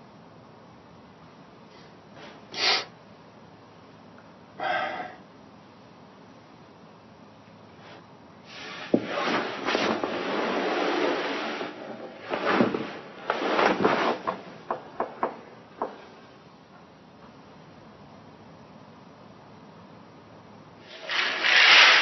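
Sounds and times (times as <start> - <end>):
rustling and handling noises: 8.8 - 14.6.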